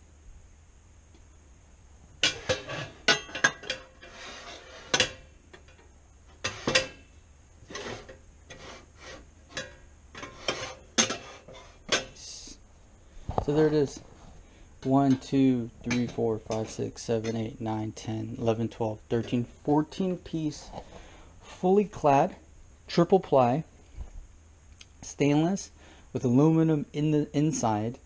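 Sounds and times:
metal pots and pans clanking: 0:02.2 - 0:05.8, 0:06.4 - 0:07.0, 0:09.5 - 0:12.2, 0:15.1 - 0:17.4.

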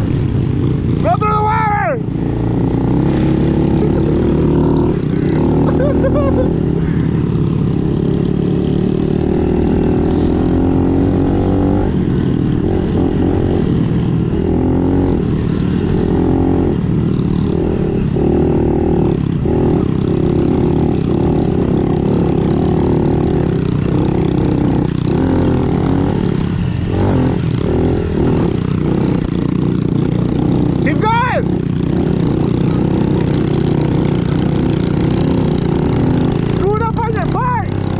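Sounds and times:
motorbike engine revving: 0:00.0 - 0:37.9.

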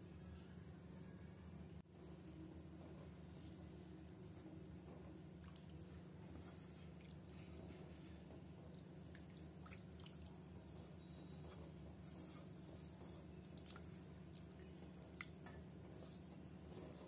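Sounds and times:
steady low hum: 0:00.0 - 0:17.0
wooden spatula stirring liquid: 0:09.2 - 0:17.0.

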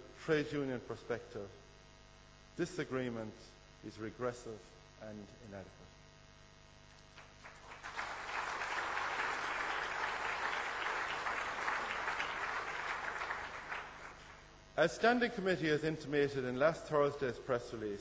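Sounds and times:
audience applauding: 0:07.2 - 0:14.5.

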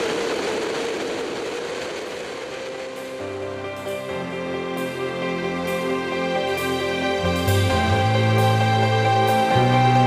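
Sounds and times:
wind rush on microphone: 0:00.0 - 0:03.4
motorcycle engine drone: 0:00.0 - 0:05.5.

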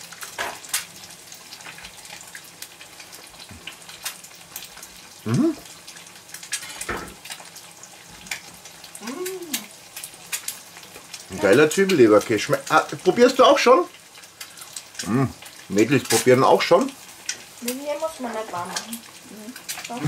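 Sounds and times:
crackles and spits: 0:00.0 - 0:20.0
eggs sizzling in a pan: 0:00.0 - 0:20.0.

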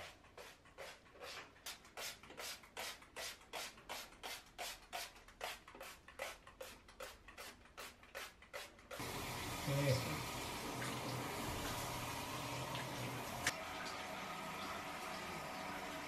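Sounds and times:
cloth scrubbing chrome fixtures: 0:00.0 - 0:16.0.

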